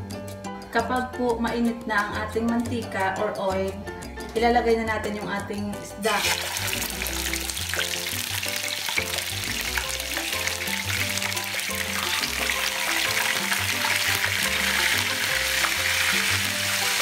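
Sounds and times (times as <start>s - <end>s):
background music with bass line: 0.0s - 17.0s
fish sizzling in hot oil: 6.0s - 17.0s.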